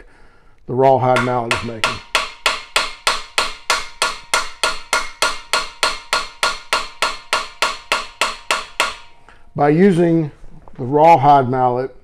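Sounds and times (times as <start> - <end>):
mallet tapping brass tube: 1.1 - 9.4.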